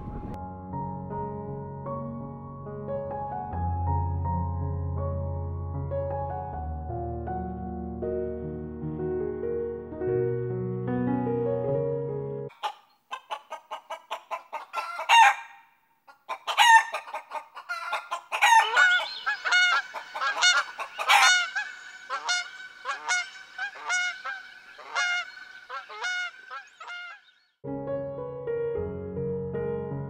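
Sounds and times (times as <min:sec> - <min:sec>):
kookaburras cackling: 0:12.5 - 0:27.4.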